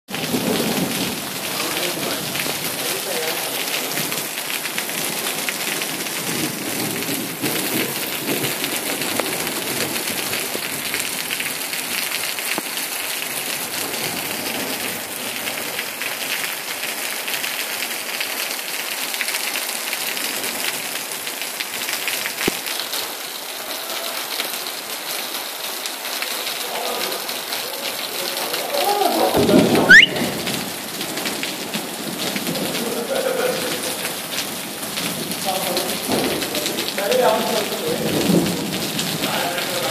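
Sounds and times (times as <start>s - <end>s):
heavy rain on asphalt: 0.1s - 39.9s
rising whistle-like sound: 29.9s - 30.3s.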